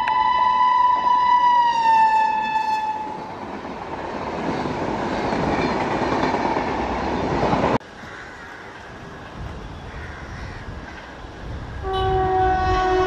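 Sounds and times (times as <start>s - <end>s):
locomotive horn: 0.0s - 3.2s, 11.8s - 13.0s
train coaches rolling past: 0.0s - 9.9s.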